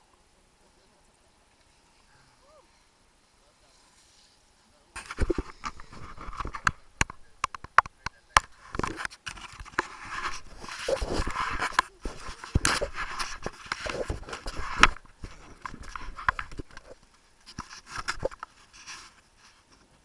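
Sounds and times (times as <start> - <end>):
jacket fabric rustling on camera: 8.6 - 20.0.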